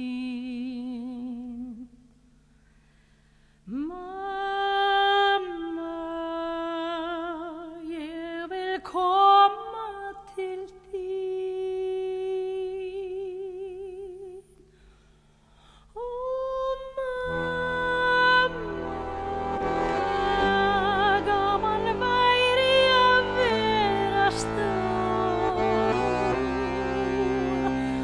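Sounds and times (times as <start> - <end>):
instrumental accompaniment: 17.2 - 28.0.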